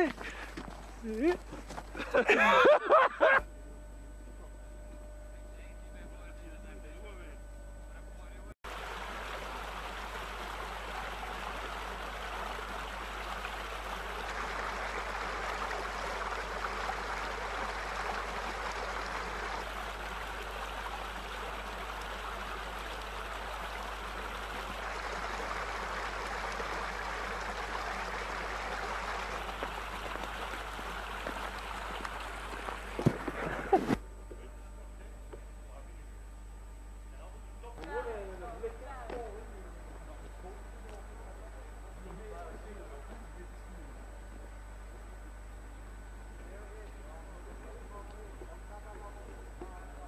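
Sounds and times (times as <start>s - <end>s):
stream flowing: 8.6s - 33.7s.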